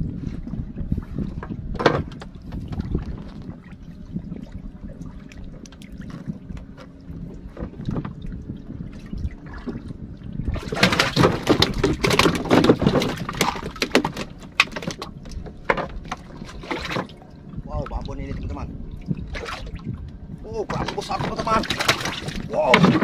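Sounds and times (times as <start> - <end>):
low wind rumble: 0.0 - 23.0
water splashing hard: 9.0 - 14.4, 19.1 - 19.9, 20.6 - 23.0.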